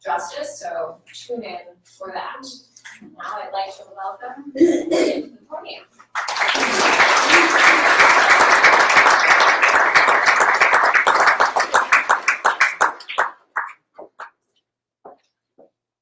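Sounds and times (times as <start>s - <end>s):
audience applauding: 6.1s - 14.4s.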